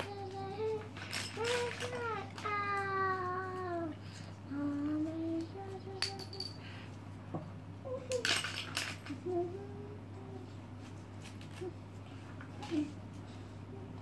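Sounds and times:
pencils clicking and rattling: 0:00.0 - 0:04.3, 0:08.1 - 0:09.3
child humming and vocalizing: 0:00.0 - 0:06.0, 0:07.8 - 0:08.2, 0:09.1 - 0:10.6.

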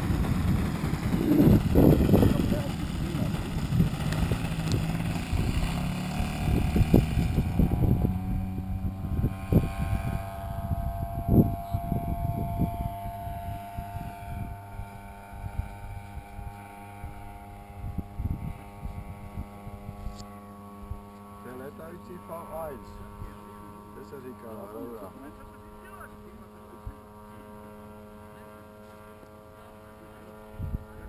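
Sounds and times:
model plane engine droning: 0:00.0 - 0:31.0.

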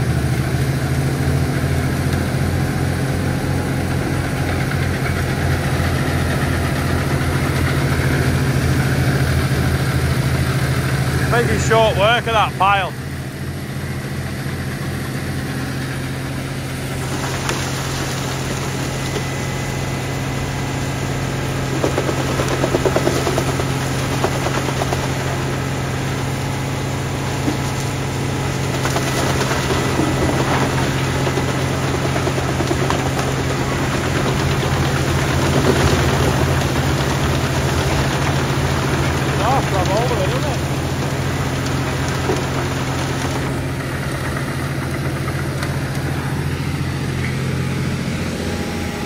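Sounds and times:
tractor engine under load: 0:00.0 - 0:49.0
wood chipper grinding branches: 0:00.0 - 0:49.0.

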